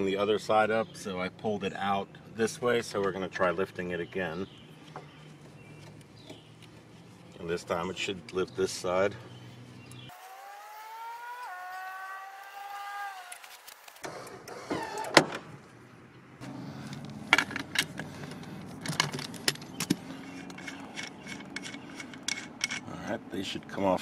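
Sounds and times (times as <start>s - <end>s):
drawn-out squeak: 10.2s - 15.5s
socket wrench clicking on lug nuts: 19.5s - 22.9s.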